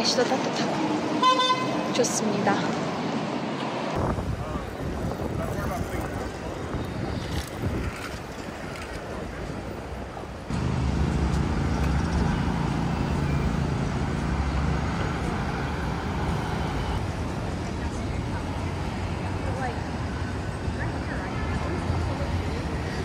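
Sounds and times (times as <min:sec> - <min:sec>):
city street traffic: 0:00.0 - 0:23.0
wind on microphone: 0:03.9 - 0:10.0
low vehicle engine hum: 0:10.5 - 0:18.1.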